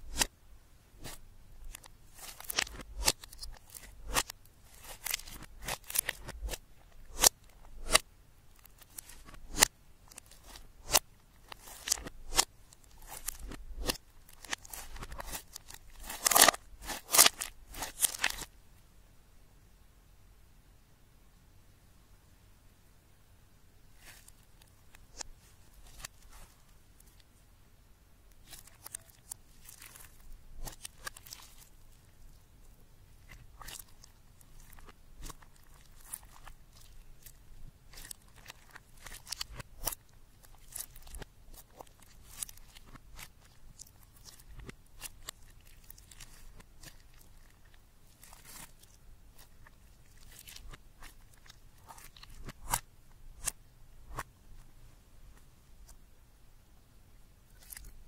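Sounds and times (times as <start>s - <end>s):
slime crackling and popping: 1.0s - 8.0s, 8.6s - 18.5s, 25.1s - 27.2s, 28.3s - 32.4s, 33.2s - 52.8s.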